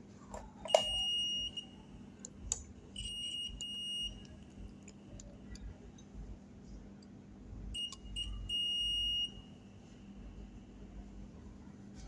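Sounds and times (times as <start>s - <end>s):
multimeter continuity beeps: 0.6s - 2.0s, 2.9s - 5.3s, 7.7s - 9.6s.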